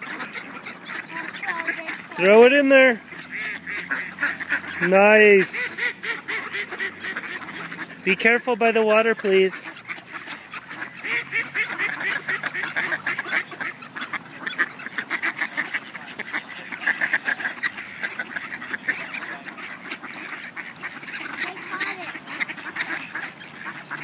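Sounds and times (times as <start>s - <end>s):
ducks quacking: 0.0s - 24.0s.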